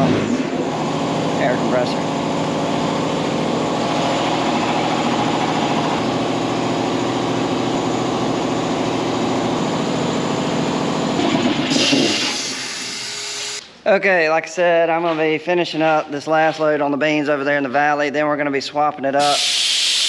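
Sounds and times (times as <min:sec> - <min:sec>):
air compressor running: 0:00.0 - 0:13.7, 0:19.2 - 0:20.0.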